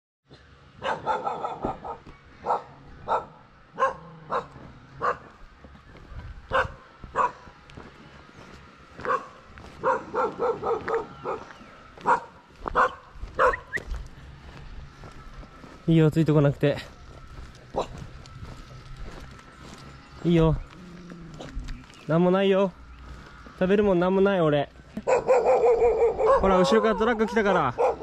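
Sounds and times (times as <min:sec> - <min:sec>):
dog barking: 0:00.8 - 0:05.4, 0:06.5 - 0:07.5, 0:09.0 - 0:13.8, 0:17.7 - 0:18.0, 0:25.0 - 0:28.0.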